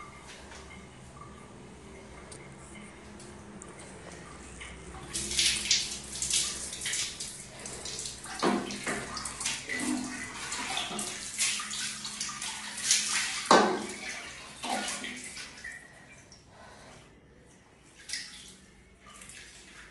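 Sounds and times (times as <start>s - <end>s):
water splashing on tiled floor: 4.2s - 16.1s, 18.0s - 19.9s.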